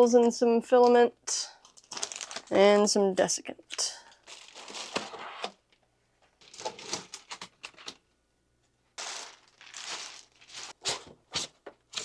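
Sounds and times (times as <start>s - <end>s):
plastic bag crinkling: 1.6s - 2.6s, 3.7s - 5.2s, 6.4s - 8.0s, 9.0s - 10.8s.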